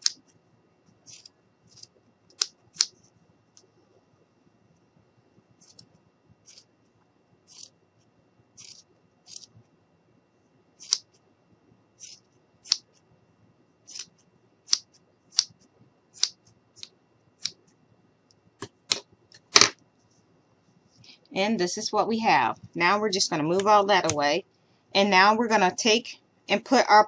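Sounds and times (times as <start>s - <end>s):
scissors snipping: 1.1s - 2.9s, 8.6s - 9.5s, 10.8s - 11.0s.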